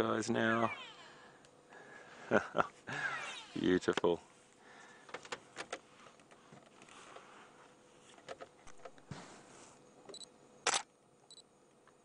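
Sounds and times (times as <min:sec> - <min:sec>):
camera shutter clicking: 0:10.7 - 0:10.9.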